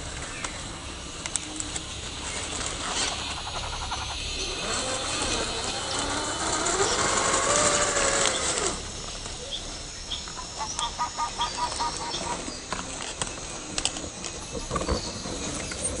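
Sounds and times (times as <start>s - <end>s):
electric motor and drivetrain whining: 1.0s - 10.0s
tyres scraping on rocks and twigs: 11.5s - 16.0s.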